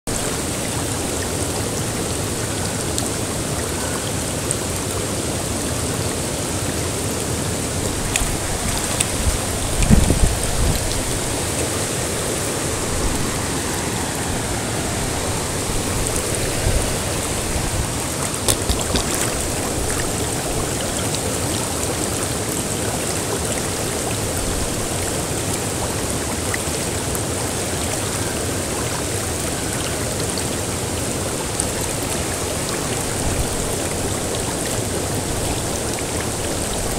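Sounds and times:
river rushing over stones: 0.0s - 36.9s
low thumps: 8.1s - 11.0s.

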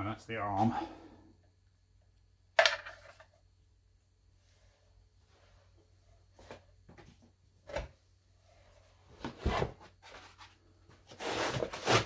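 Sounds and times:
foam and cardboard rubbing: 11.1s - 12.0s.

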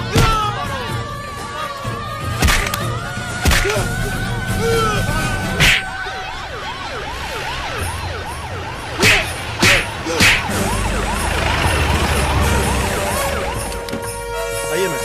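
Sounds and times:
sharp whacks: 2.4s - 2.8s, 3.4s - 3.8s, 5.6s - 5.9s, 9.0s - 10.6s
police siren wailing: 3.7s - 14.4s.

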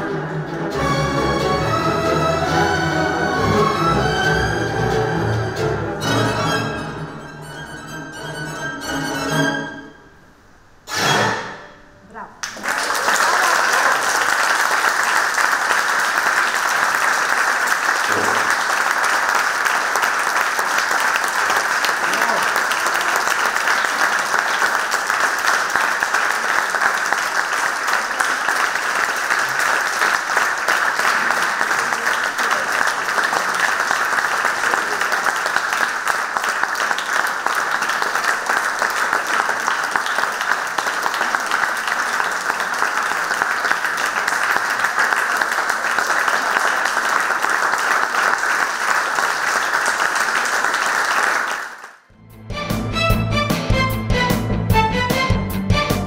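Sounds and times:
audience applauding: 12.4s - 52.1s.

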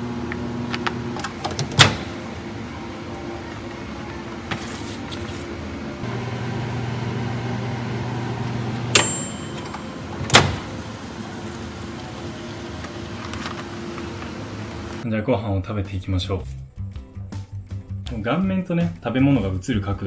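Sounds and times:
microwave oven humming: 0.0s - 4.6s, 5.4s - 15.0s
microwave door clack: 1.2s - 2.2s, 8.9s - 10.8s
microwave timer click and ring: 8.8s - 10.5s.

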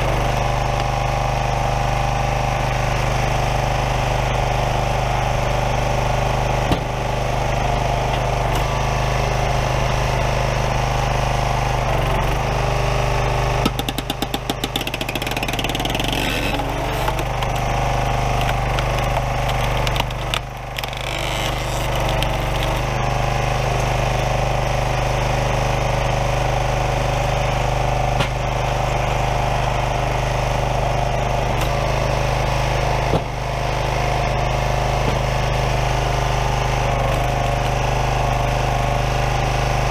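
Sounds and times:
small gas engine running: 0.0s - 39.9s
sharp knocks: 13.6s - 17.6s
rapid rattling: 13.8s - 23.0s.

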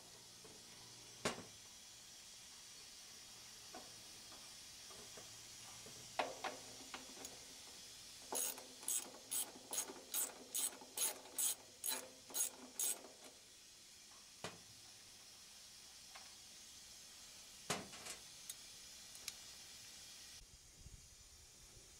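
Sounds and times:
ratchet wrench clicking: 8.3s - 13.4s.

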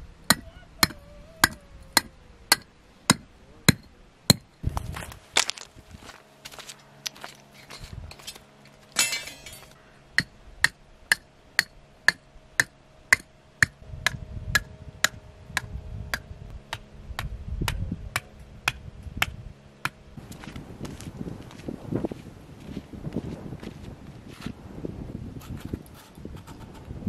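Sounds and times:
metal stake being hammered: 0.3s - 4.5s, 9.0s - 20.0s.

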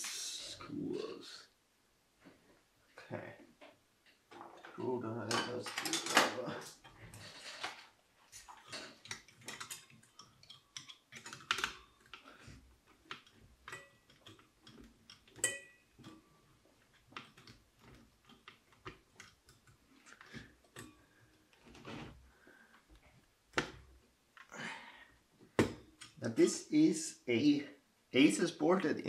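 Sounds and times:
small clicks of metal and plastic: 5.3s - 21.8s.

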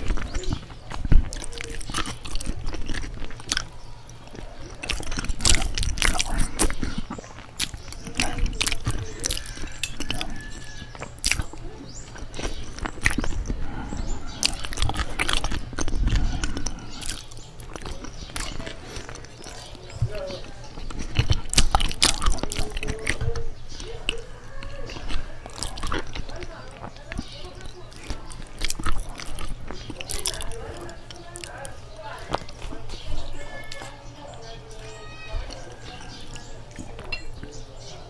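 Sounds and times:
wet mouth clicks and lip smacks: 0.0s - 13.6s, 14.4s - 19.7s, 20.8s - 23.2s
chewing soft food: 0.0s - 38.0s.

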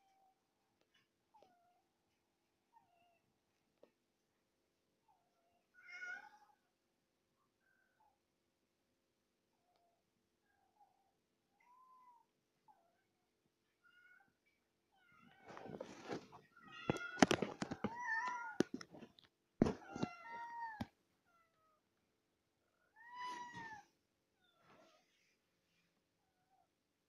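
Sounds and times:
cats meowing: 5.7s - 6.6s, 15.0s - 21.5s, 22.9s - 23.9s.

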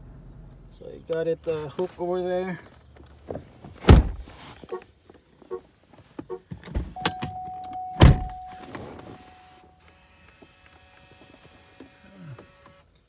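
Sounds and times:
steady tone: 7.0s - 9.8s
heavy thump: 8.0s - 9.0s.

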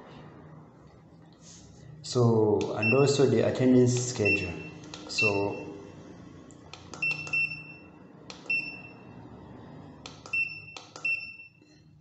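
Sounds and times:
keypad button clicks: 6.8s - 7.6s, 10.1s - 11.4s
short high electronic beeps: 7.0s - 9.1s.

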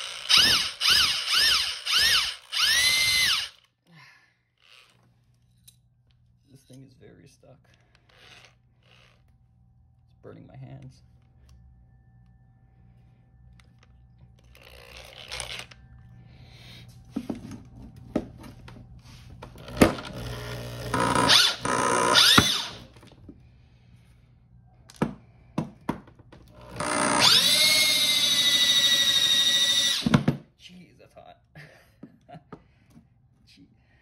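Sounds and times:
power drill spinning: 0.0s - 3.9s, 4.6s - 5.6s, 7.7s - 9.4s, 13.0s - 16.1s, 18.9s - 23.4s, 26.4s - 30.3s.

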